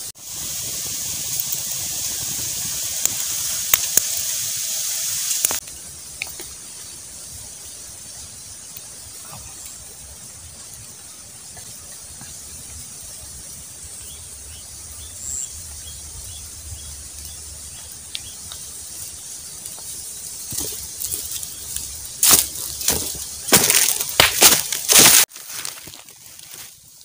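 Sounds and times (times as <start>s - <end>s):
steady high hiss: 0.0s - 27.0s
footsteps crunching on dry leaves: 19.0s - 27.0s.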